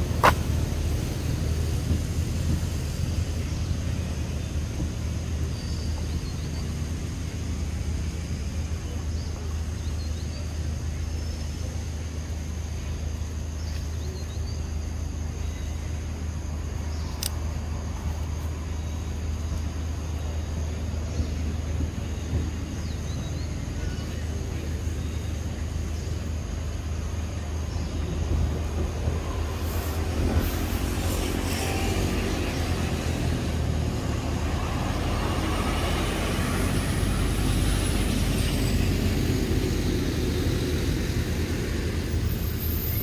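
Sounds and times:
low outdoor rumble: 0.0 - 43.0
motor vehicle passing: 29.6 - 43.0.

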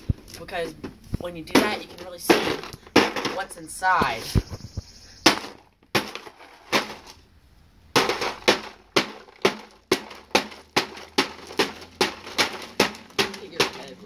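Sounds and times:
hatchet chopping crackers bag: 5.2 - 7.2, 8.0 - 14.0.

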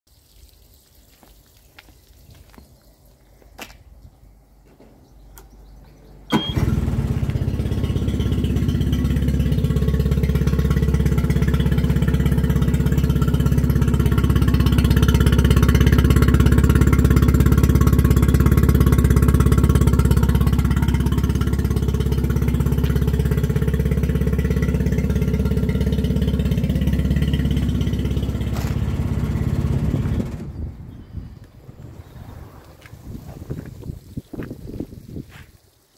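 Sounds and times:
outboard motor running: 6.3 - 30.9.

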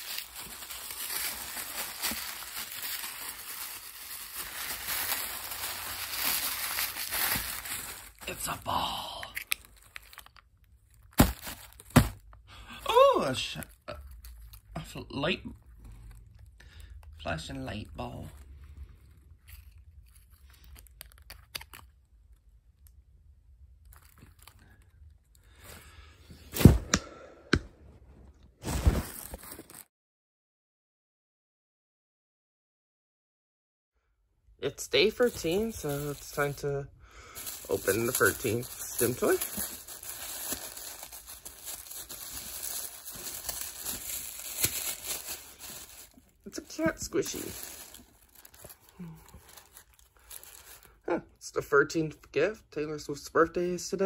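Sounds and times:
packaging rustling and crackling: 0.0 - 12.4, 18.2 - 22.4, 23.8 - 24.9, 28.6 - 29.9, 35.0 - 36.7, 37.4 - 51.0.

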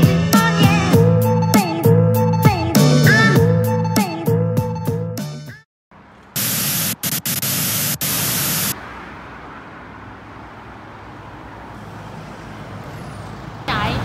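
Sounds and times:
street ambience: 5.9 - 14.0
tv static white noise: 6.4 - 8.8.

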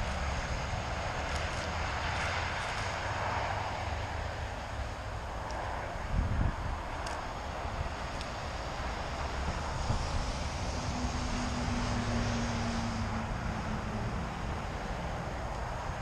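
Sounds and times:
faint distant engine drone: 0.0 - 16.0
steady rushing hiss: 0.0 - 16.0
wind rumbling on microphone: 0.0 - 16.0.

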